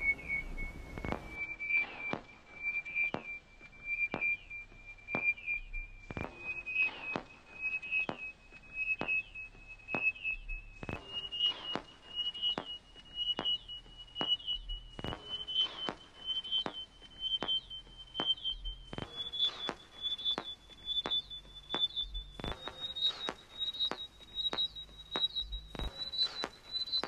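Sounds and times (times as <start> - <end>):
chirping beep: 8.9 - 27.0.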